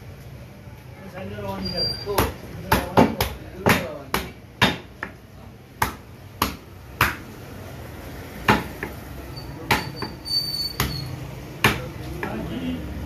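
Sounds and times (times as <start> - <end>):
cleaver chopping on wooden block: 2.2 - 5.2, 5.8 - 7.2, 8.5 - 9.0, 11.6 - 12.4.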